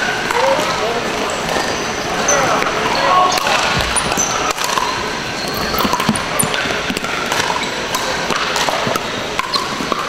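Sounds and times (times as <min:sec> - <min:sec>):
background noise of other games: 0:00.0 - 0:10.0
paddles hitting plastic ball: 0:03.4 - 0:10.0
shoe squeaks on hardwood: 0:05.3 - 0:06.7.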